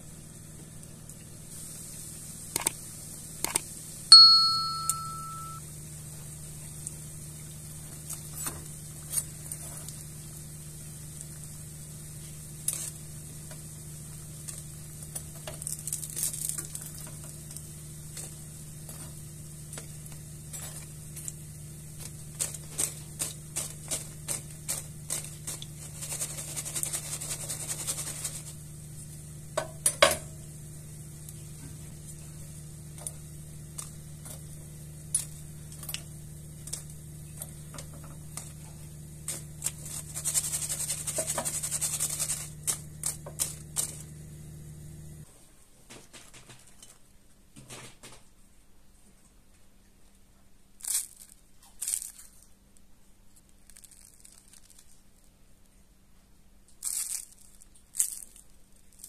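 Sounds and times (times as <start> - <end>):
oil sizzling in a pan: 0.0 - 45.0
low hum: 4.1 - 5.7.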